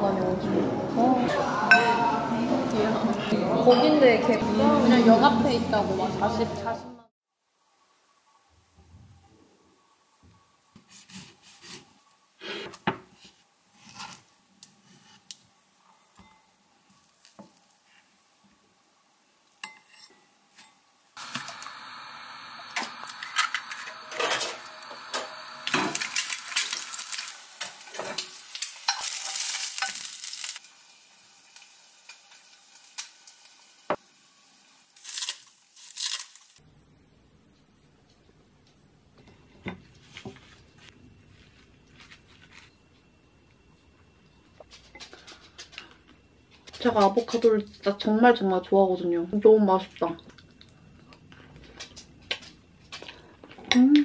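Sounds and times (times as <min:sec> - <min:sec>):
egg sizzling in a pan: 0:13.7 - 0:36.6
dishes and utensils clattering: 0:23.4 - 0:26.8.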